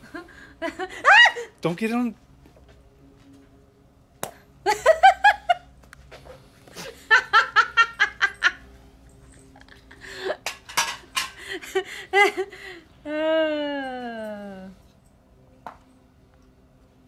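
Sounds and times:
woman laughing: 0.0s - 1.5s, 4.7s - 5.7s, 6.8s - 8.6s, 11.4s - 14.7s.

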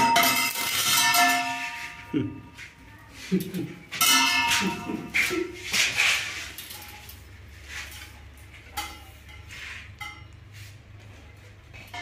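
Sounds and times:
steel tube clinking and ringing: 0.0s - 2.7s, 3.9s - 5.6s, 7.9s - 10.4s, 11.7s - 12.0s.

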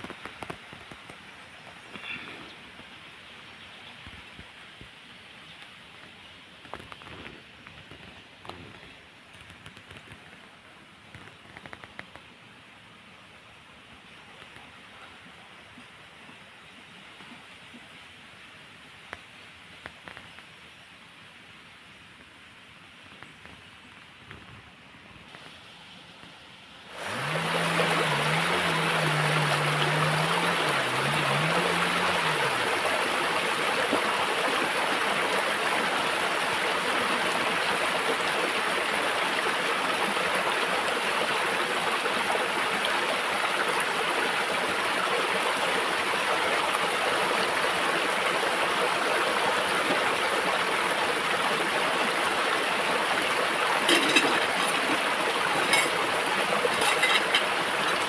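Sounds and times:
stream babbling over rocks: 0.0s - 20.5s, 23.2s - 58.0s
low wavering hum: 27.0s - 34.0s.

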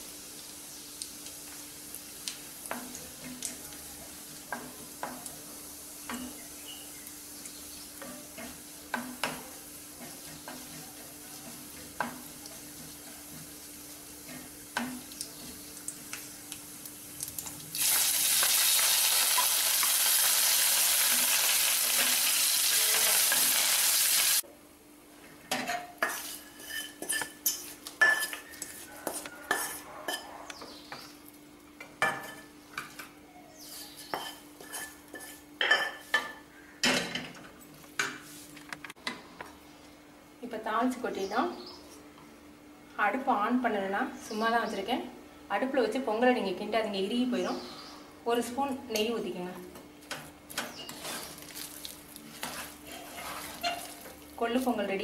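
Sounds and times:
loud sizzle: 0.0s - 24.4s
nuts and seeds frying in oil: 0.0s - 24.4s, 50.5s - 55.0s
spoon clinking against a pot: 25.6s - 30.3s, 34.0s - 36.4s
wooden spoon scraping a pan: 26.0s - 30.3s, 33.6s - 36.1s, 50.7s - 54.2s.

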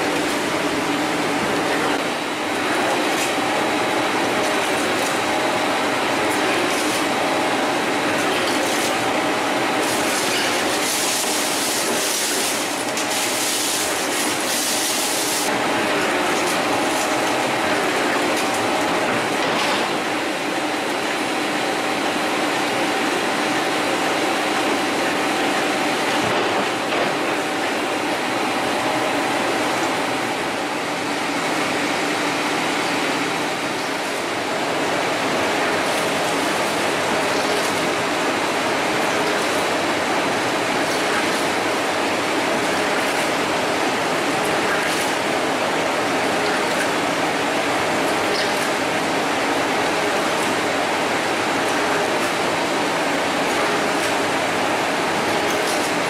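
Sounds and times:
gear-cutting machine running: 0.0s - 56.0s.

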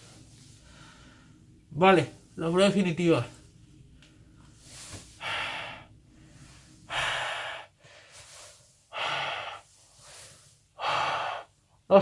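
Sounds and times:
faint inhales: 4.6s - 11.5s.

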